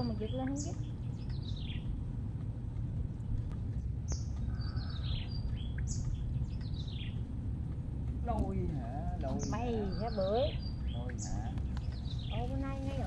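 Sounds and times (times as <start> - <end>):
bird chirping calls: 0.0 - 2.0, 3.2 - 7.3, 9.0 - 13.0
steady low rumble: 0.0 - 13.0.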